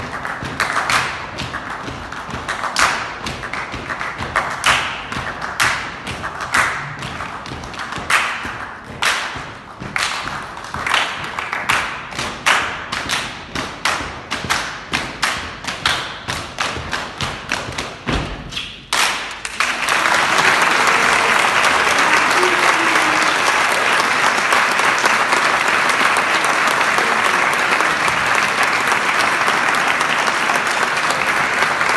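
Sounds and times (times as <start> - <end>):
ensemble hand-clap rhythm: 0.0 - 31.9
audience applause: 10.0 - 11.9, 19.4 - 31.9.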